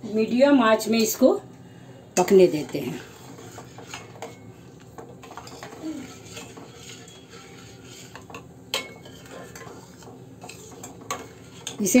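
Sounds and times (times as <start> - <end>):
ladle scraping metal pot: 2.6 - 12.0.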